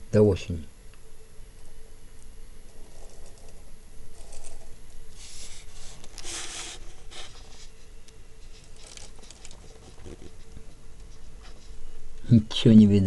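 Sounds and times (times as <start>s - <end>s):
rustling gusts of hiss: 2.9s - 12.1s.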